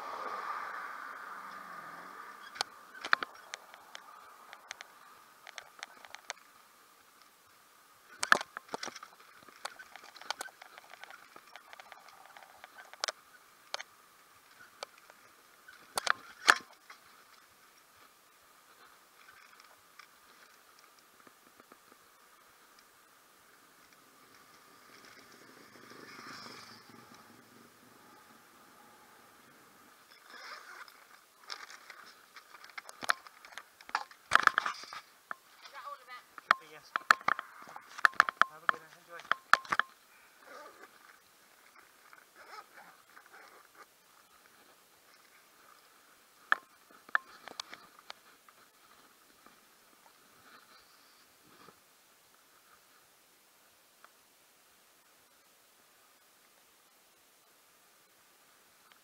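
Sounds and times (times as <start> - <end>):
faint steady hiss: 0.0 - 59.0
bicycle clicks and rattles: 8.2 - 13.9, 30.4 - 35.4, 36.4 - 39.9.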